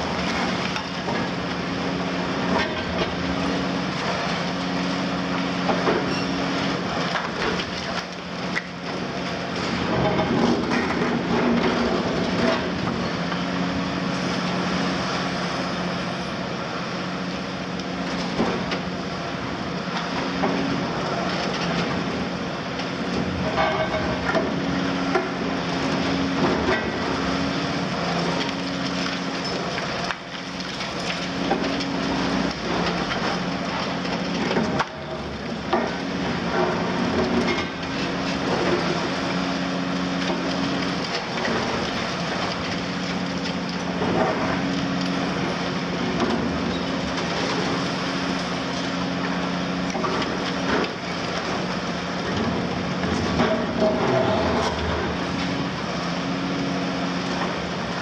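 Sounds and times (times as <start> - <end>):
excavator diesel engine running: 0.0 - 58.0
concrete cracking and crunching: 27.7 - 55.8.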